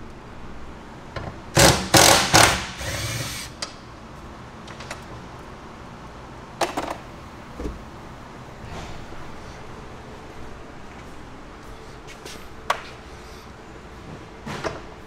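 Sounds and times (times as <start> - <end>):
impact wrench hammering: 1.6 - 3.5.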